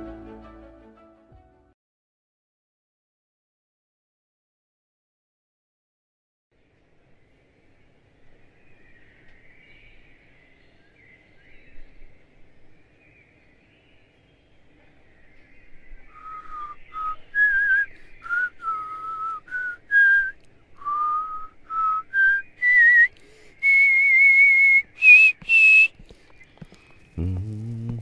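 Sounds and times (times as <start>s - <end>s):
person whistling a tune: 16.2s - 25.9s.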